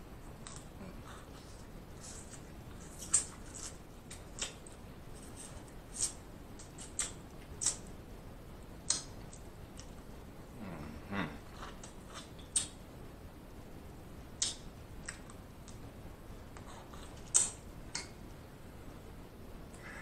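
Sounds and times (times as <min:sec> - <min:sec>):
quiet chewing: 0:00.2 - 0:07.9, 0:08.9 - 0:12.8, 0:16.5 - 0:18.2.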